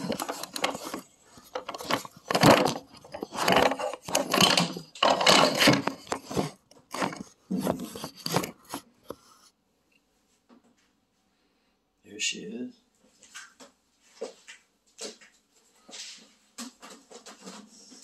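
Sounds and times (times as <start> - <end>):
guitar cable handling noise: 0.0 - 9.2.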